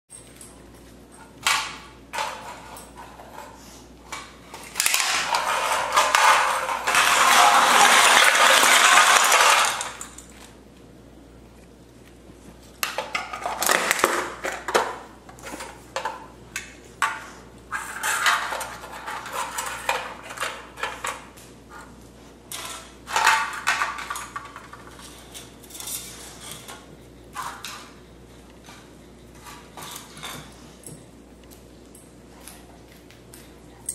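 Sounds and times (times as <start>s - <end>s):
aluminium cans clattering on floor: 4.6s - 10.3s, 12.8s - 16.2s, 17.0s - 21.4s, 22.5s - 26.8s.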